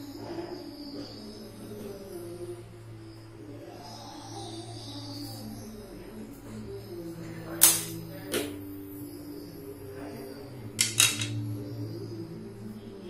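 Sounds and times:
metal spoon clinking: 10.8 - 11.4.

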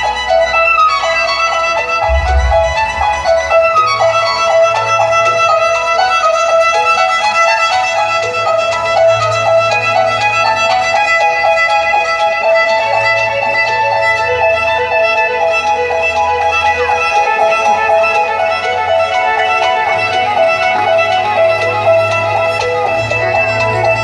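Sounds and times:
fast violin melody: 0.0 - 24.0
held low bass: 2.0 - 4.8.

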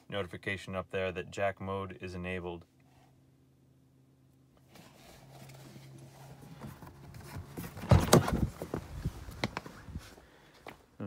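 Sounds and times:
rustling and handling noise: 4.6 - 10.8
car door clunking: 6.5 - 9.6.

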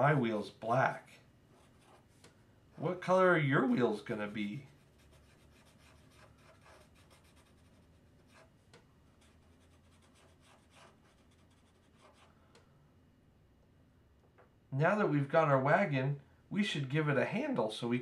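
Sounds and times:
marker scratching on paper: 1.6 - 2.2, 4.7 - 8.6, 9.2 - 12.3.

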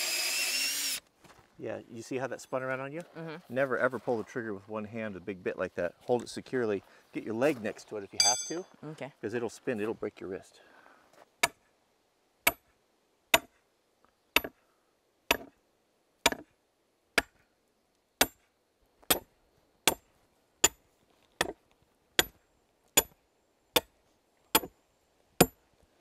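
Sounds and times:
sledgehammer striking steel stake: 8.2 - 8.7, 11.4 - 11.6, 12.5 - 12.7, 13.4 - 13.6, 15.3 - 15.6, 16.2 - 16.5, 17.2 - 17.4, 18.2 - 18.5, 19.1 - 19.3, 23.0 - 23.2.

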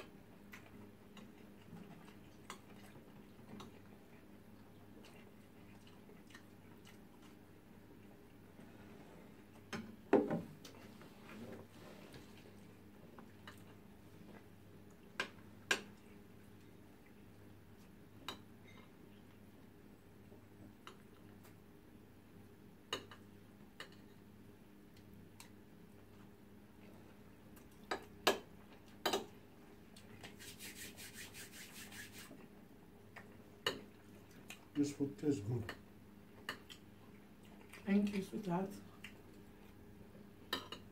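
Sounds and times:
faint steady hum: 0.0 - 40.9
cutlery clicking on a plate: 27.9 - 29.3, 40.5 - 40.9.

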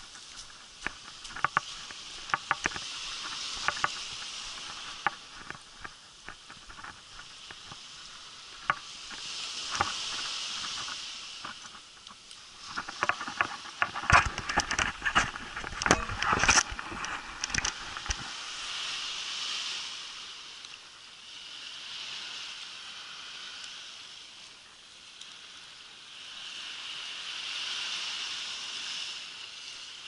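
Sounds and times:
footsteps crunching on shelly sand: 0.0 - 20.2
small waves washing up beach: 0.0 - 30.0.

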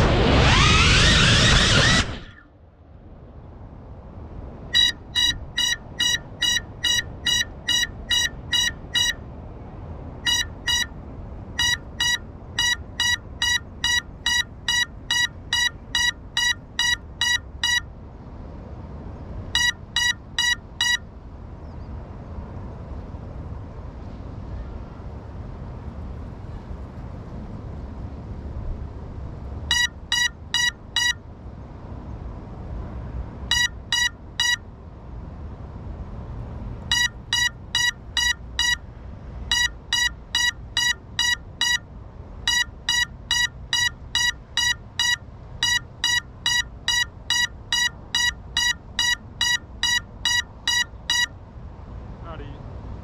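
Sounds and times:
drone alarm beeping: 29.7 - 31.2, 33.5 - 34.6, 36.9 - 38.8, 39.5 - 41.8, 42.5 - 51.3.

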